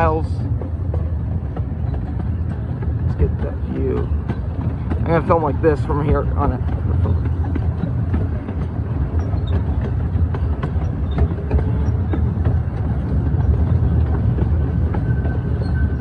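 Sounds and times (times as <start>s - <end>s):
steam locomotive chugging: 0.0s - 16.0s
wheels rumbling on track: 0.0s - 16.0s.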